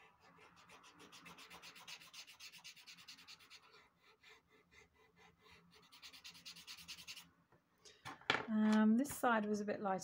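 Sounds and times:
pastel scratching on paper: 0:00.0 - 0:07.3.

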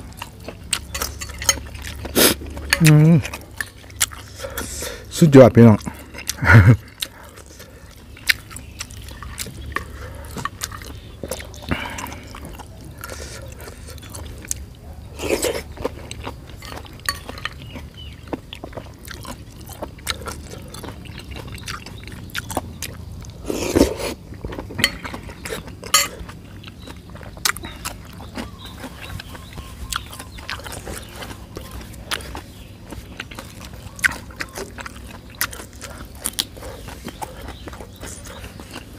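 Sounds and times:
person chewing: 0:00.0 - 0:38.9.

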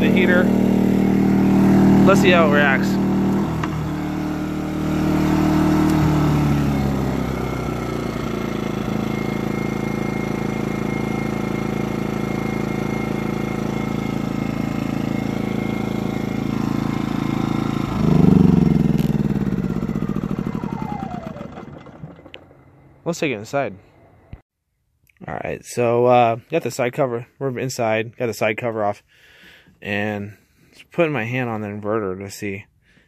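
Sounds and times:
generator engine running: 0:00.0 - 0:23.1.

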